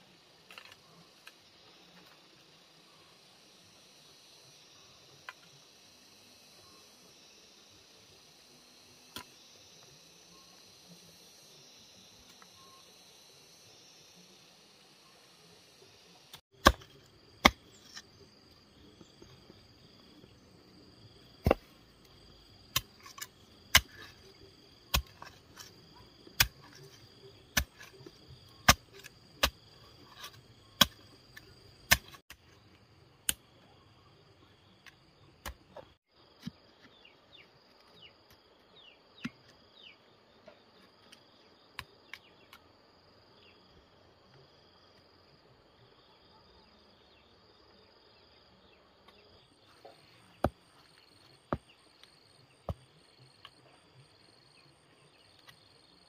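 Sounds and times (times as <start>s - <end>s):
insects buzzing: 0.0s - 56.0s
hand tool striking hard material: 21.4s - 21.7s, 22.7s - 24.1s, 24.9s - 25.7s, 26.4s - 28.0s, 28.6s - 31.1s, 31.9s - 32.3s.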